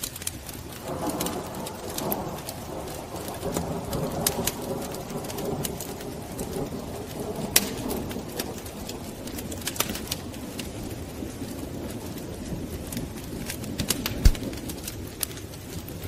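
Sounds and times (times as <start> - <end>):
wood fire crackling: 0.0 - 16.0
sharp pops: 13.8 - 14.6.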